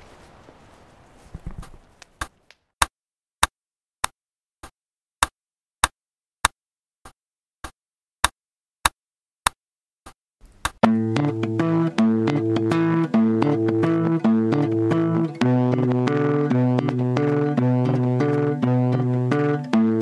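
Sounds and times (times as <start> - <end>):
sharp metronome-like ticks: 10.7 - 20.0.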